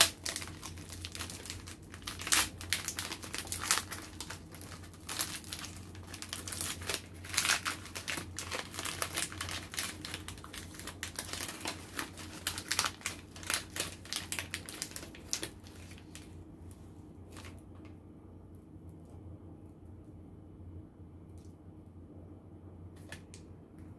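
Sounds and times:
foil wrapper crinkling and tearing: 0:00.0 - 0:16.4.

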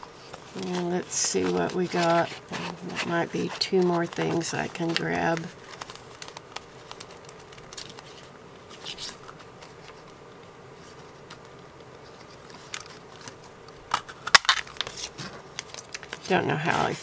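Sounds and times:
faint steady hum: 0:00.0 - 0:17.0
paper rustling: 0:00.0 - 0:17.0.

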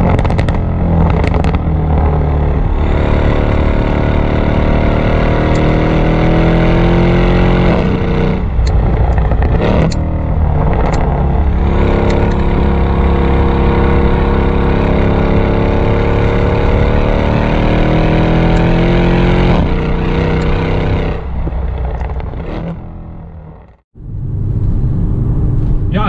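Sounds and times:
exhaust pops: 0:00.0 - 0:02.3, 0:07.6 - 0:15.4, 0:19.5 - 0:23.8
car engine revving: 0:00.0 - 0:26.0.

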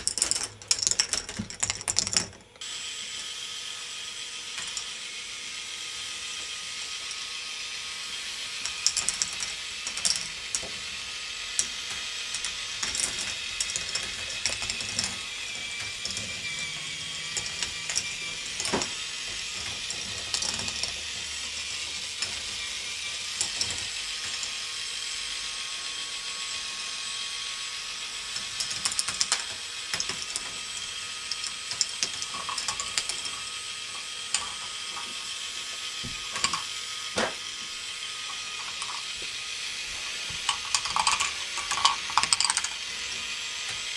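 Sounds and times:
plastic balls clacking on tracks: 0:00.0 - 0:02.5, 0:04.5 - 0:04.9, 0:08.2 - 0:24.9, 0:28.2 - 0:37.5, 0:38.2 - 0:39.2, 0:40.3 - 0:43.9
motorised lift ratcheting: 0:08.6 - 0:25.5, 0:28.1 - 0:37.5, 0:40.4 - 0:42.9.

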